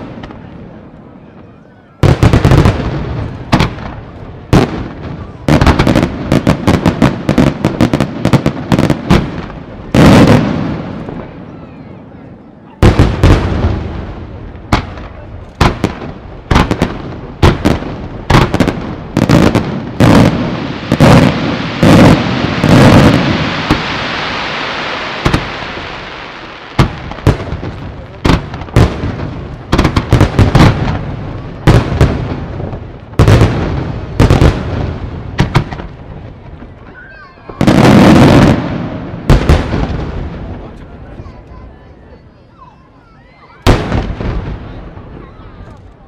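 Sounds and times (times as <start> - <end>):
crackling fizz of firework stars: 19.4 - 41.6.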